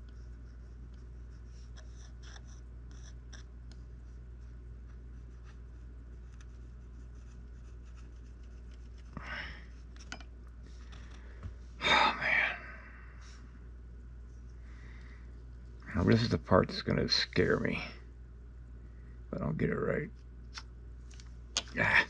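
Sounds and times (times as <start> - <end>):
metal tool scratching clay: 0.0 - 3.5.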